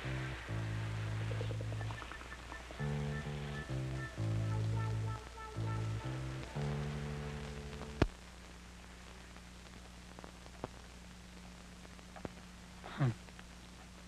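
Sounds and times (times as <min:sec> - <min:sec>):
held music chord: 0:00.0 - 0:08.0
film soundtrack hum and hiss: 0:00.0 - 0:14.0
faint ticks: 0:09.3 - 0:12.5.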